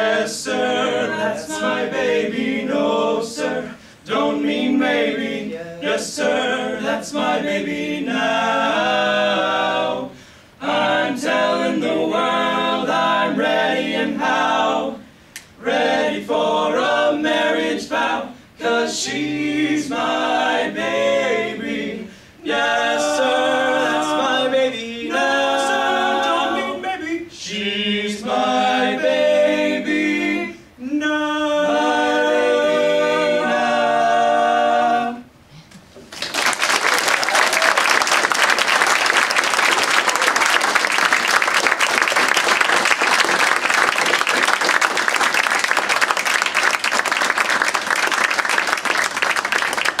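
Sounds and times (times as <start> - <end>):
male quartet singing a cappella: 0.0 - 35.3
audience applauding: 36.1 - 50.0.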